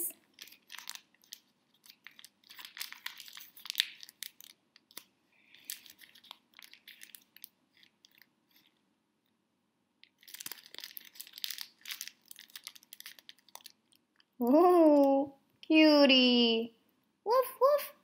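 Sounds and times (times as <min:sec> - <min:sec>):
wrapping paper tearing and crinkling: 0:00.2 - 0:08.8, 0:10.1 - 0:14.1.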